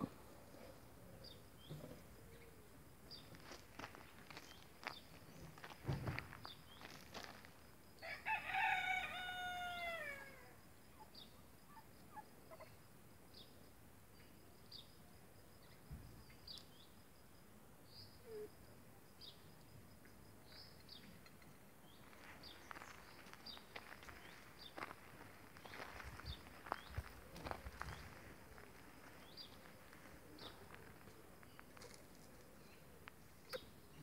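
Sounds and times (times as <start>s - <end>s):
footsteps on gravel: 3.2s - 7.5s, 22.0s - 32.1s
rooster crowing: 8.0s - 10.5s
small bird chirping: 32.6s - 34.0s.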